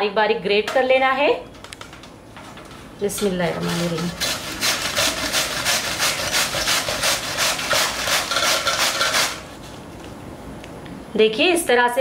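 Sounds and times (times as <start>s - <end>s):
cabbage grating on metal grater: 3.6s - 9.5s.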